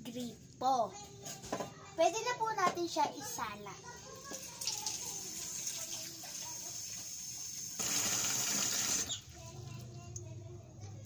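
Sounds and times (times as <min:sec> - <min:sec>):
tap water running into plastic pitcher: 0:04.2 - 0:09.5.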